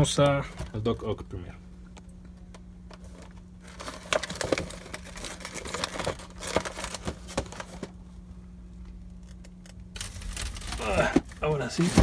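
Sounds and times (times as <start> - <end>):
plastic blister packaging crackling: 3.0 - 7.9, 9.2 - 12.0.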